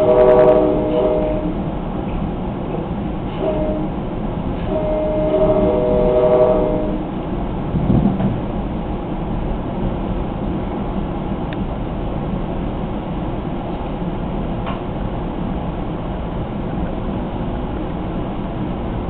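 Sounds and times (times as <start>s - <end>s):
train horn: 0.0s - 1.6s, 3.3s - 7.1s
wheels rumbling on rails: 0.0s - 19.0s.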